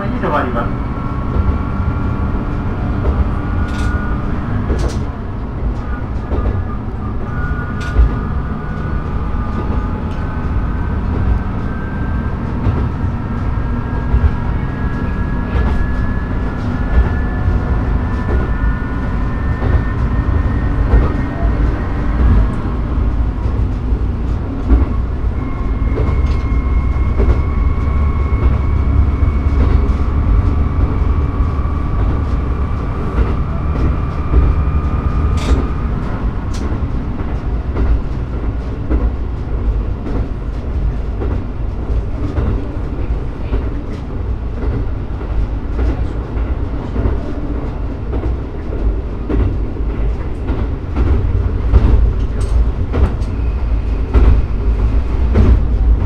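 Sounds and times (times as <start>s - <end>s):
rising whine: 0.0s - 38.2s
railcar engine and wheel rumble: 0.0s - 56.0s.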